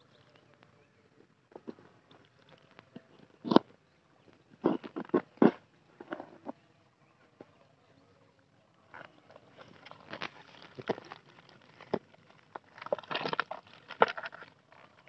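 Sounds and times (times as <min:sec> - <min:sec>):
log cracking and snapping: 0:09.0 - 0:15.0.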